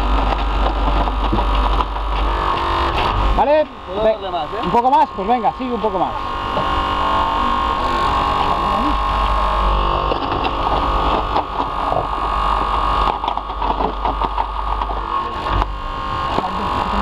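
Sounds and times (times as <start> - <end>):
hydraulic power unit humming: 0.0 - 17.0
metal clicks and cracks: 12.7 - 15.7.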